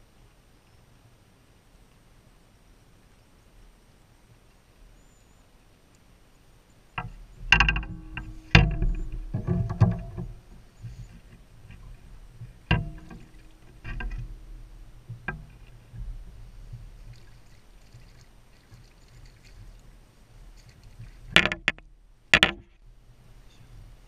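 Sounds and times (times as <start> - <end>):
muffled knocks on a kayak: 7.0 - 17.2, 21.0 - 22.8.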